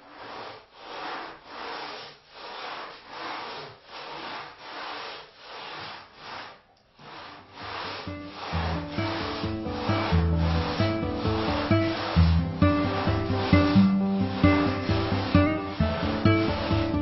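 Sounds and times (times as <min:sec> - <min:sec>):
hand sanding rasping strokes: 0:00.0 - 0:17.0
background music: 0:08.1 - 0:17.0.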